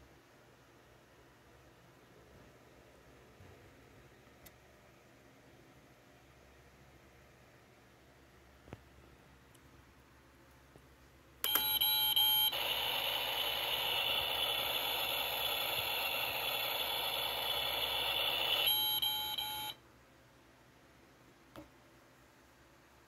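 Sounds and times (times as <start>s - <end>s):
toy oven beeping tones: 11.4s - 19.8s
electronic steady hiss: 11.4s - 19.9s.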